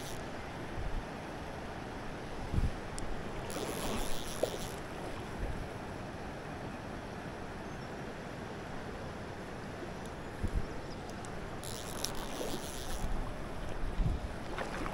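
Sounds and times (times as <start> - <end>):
wind buffeting microphone: 2.4 - 2.8, 13.1 - 14.9.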